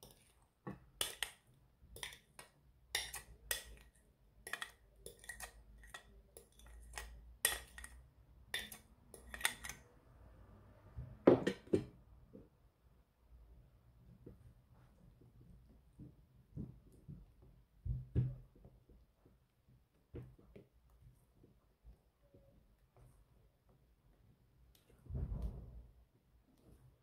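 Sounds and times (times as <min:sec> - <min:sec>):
utensil scraping ceramic plate: 0:04.4 - 0:07.9.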